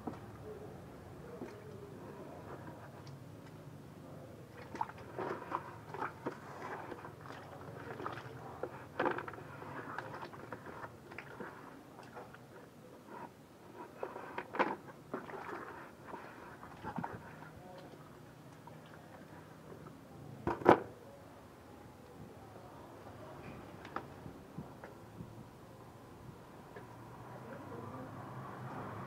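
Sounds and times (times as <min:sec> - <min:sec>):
water splashing in a bucket: 0:04.5 - 0:12.5, 0:14.4 - 0:18.0.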